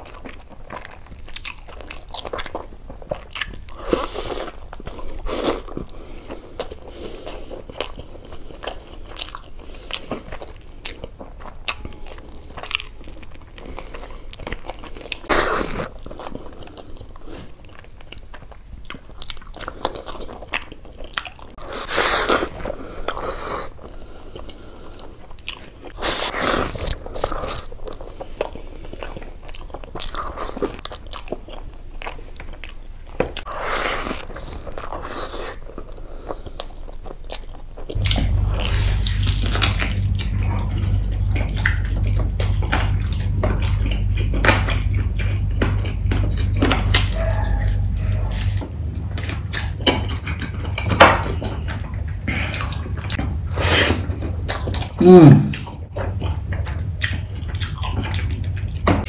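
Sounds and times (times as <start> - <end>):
wet chewing and lip smacking: 0.0 - 59.0
steady low hum: 22.4 - 59.0.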